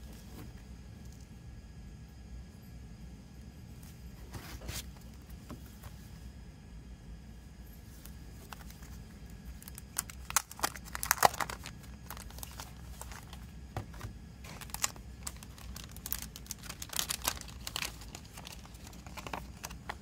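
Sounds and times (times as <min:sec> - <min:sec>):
plastic wrap crinkling: 0:08.4 - 0:20.0.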